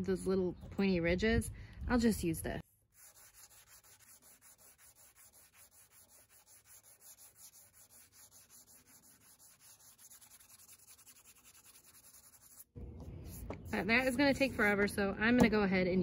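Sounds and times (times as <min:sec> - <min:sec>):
sanding wood by hand: 0:02.8 - 0:12.7, 0:13.3 - 0:14.9.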